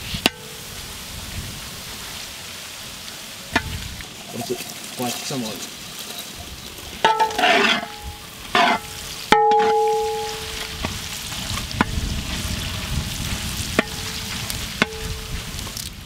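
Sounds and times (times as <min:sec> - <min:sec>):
food sizzling in oil: 0:00.0 - 0:16.0
spatula knocking metal pot: 0:07.0 - 0:08.0, 0:08.6 - 0:10.6
metal pot ringing: 0:07.0 - 0:10.8
spatula scraping pot: 0:07.1 - 0:09.0.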